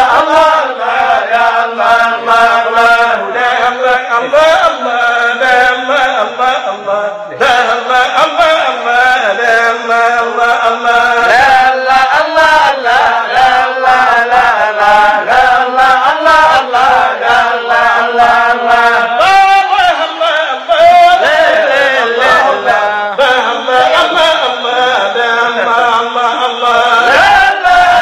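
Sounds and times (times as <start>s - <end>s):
men chanting: 0.0s - 28.0s.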